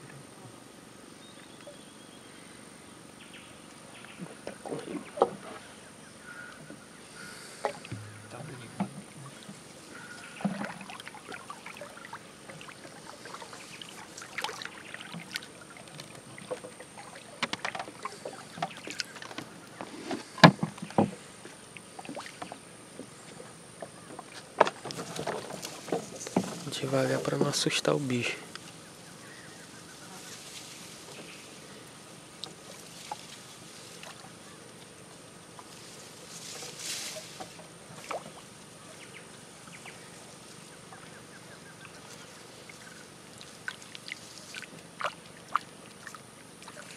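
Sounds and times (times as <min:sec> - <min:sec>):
paddle strokes in water: 0:04.2 - 0:46.9
wood knocking against hull: 0:07.6 - 0:11.0, 0:16.4 - 0:21.2, 0:23.8 - 0:27.6.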